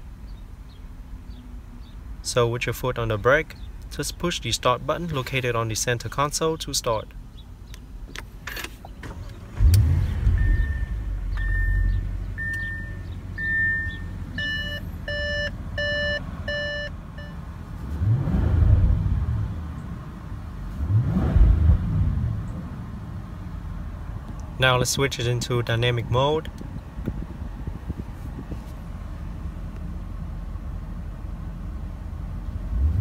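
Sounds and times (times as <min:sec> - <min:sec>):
car engine starting and idling: 0:07.7 - 0:33.0
engine revving: 0:09.1 - 0:14.0, 0:17.8 - 0:19.8, 0:20.7 - 0:22.8, 0:32.6 - 0:33.0
car warning chime beeping: 0:10.2 - 0:17.4.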